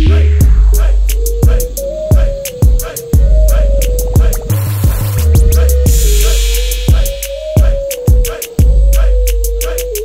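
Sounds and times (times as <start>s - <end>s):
deep kick drums: 0.0s - 9.1s
fast hi-hat ticks: 0.0s - 10.0s
held synth note: 1.4s - 7.9s.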